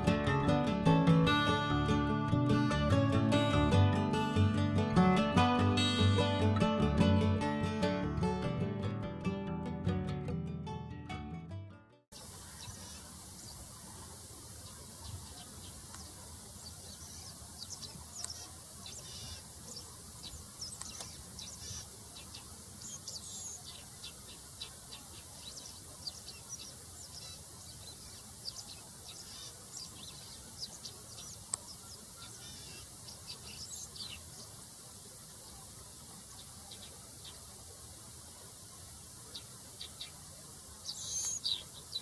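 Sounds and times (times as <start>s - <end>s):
steady background hiss: 12.2s - 42.0s
meadowlark singing: 14.6s - 34.6s, 39.3s - 42.0s.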